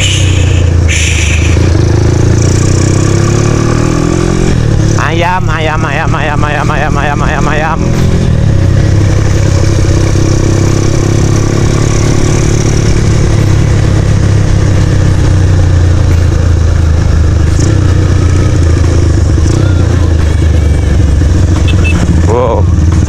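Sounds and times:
motorcycle engine cruising: 0:00.0 - 0:23.0.

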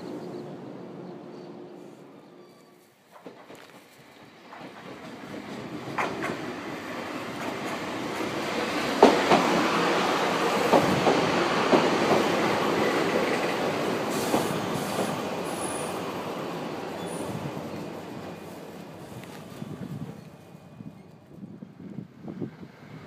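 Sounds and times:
train wheels clacking over rail joints: 0:03.1 - 0:15.8.

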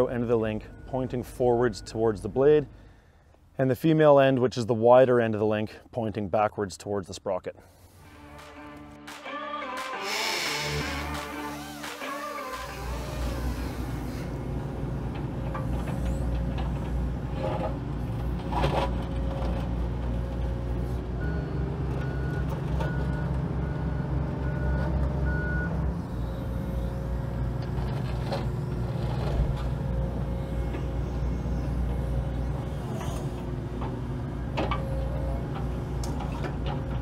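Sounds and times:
excavator diesel engine running: 0:10.4 - 0:37.0.

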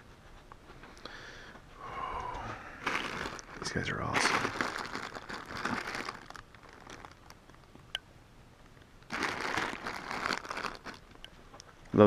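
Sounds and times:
plastic bags crinkling: 0:02.8 - 0:07.6, 0:09.0 - 0:11.3.

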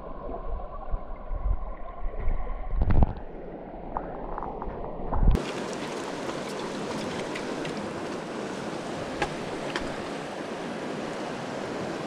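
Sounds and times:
river water rushing over rocks: 0:05.4 - 0:12.0.

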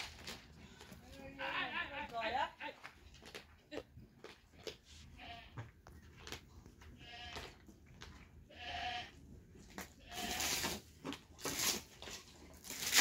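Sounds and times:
plastic bag rustling: 0:00.0 - 0:00.8
farm animals bleating: 0:05.1 - 0:05.7, 0:06.9 - 0:07.7, 0:08.5 - 0:10.7.

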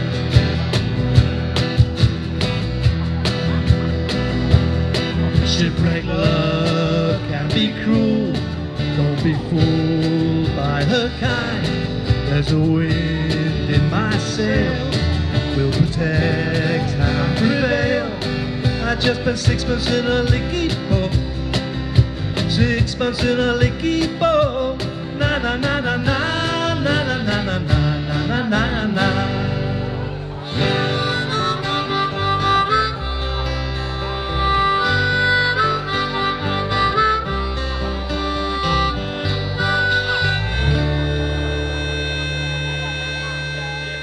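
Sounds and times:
steady beat: 0:00.0 - 0:28.1
acoustic and electric guitars: 0:00.0 - 0:44.0
folk-rock band playing: 0:00.0 - 0:44.0.

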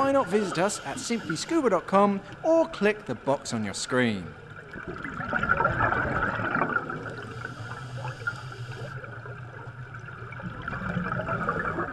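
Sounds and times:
underwater air bubbles gurgling: 0:04.3 - 0:11.9.

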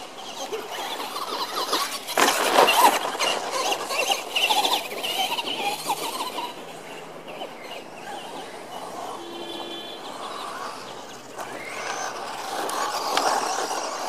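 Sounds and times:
radio-controlled truck passing: 0:00.0 - 0:14.0
high squealing: 0:07.9 - 0:13.6.

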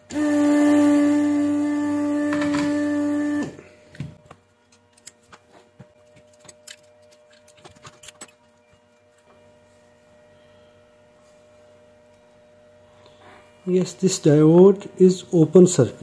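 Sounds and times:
loud droning tone: 0:00.0 - 0:03.9, 0:08.5 - 0:14.3
faint electrical hum: 0:00.0 - 0:16.0.

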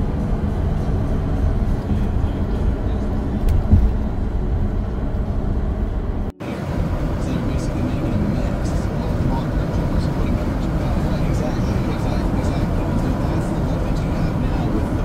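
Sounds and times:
vehicle road rumble: 0:00.0 - 0:15.0
thump: 0:03.5 - 0:04.1.

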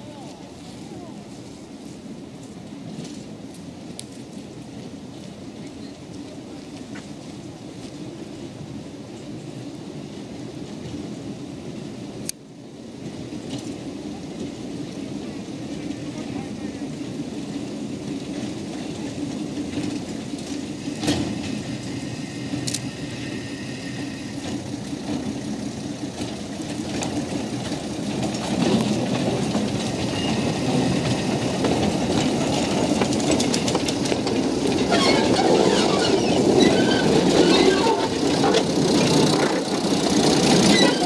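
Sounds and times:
diesel locomotive engine: 0:00.0 - 0:41.0
wheels clicking over rails: 0:13.0 - 0:41.0.

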